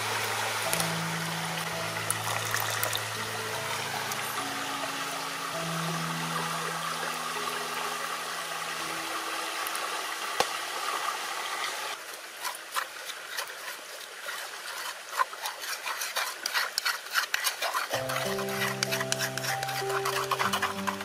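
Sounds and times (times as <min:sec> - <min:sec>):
liquid trickling into flour: 0:02.1 - 0:03.0
stick stirring batter in bowl: 0:12.4 - 0:21.0.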